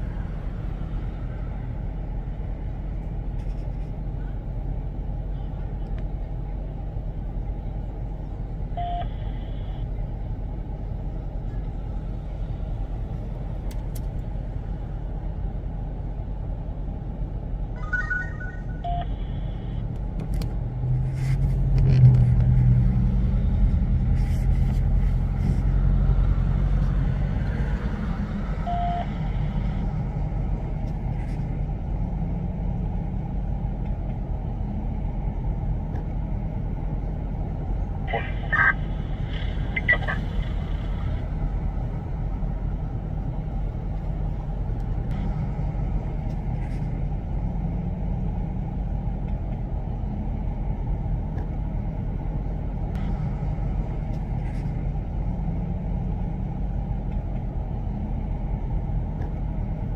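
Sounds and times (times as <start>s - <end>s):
low road rumble: 0.0s - 59.9s
short faint beep: 8.8s - 9.7s, 17.9s - 19.7s, 28.7s - 29.1s.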